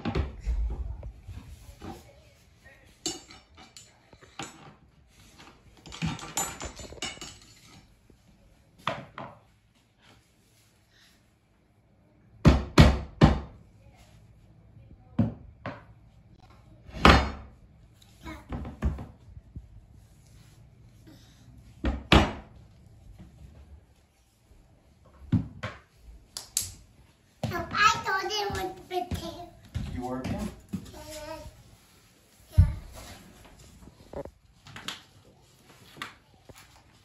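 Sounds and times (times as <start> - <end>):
hand tools clinking and scraping: 3.0 - 8.0.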